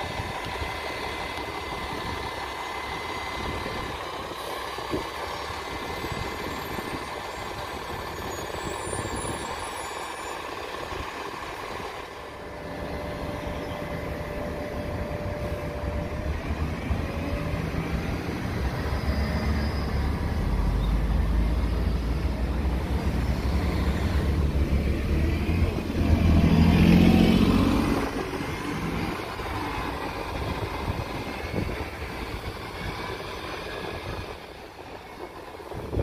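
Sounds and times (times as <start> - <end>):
city bus engine passing: 0.0 - 36.0
car passing: 15.6 - 34.6.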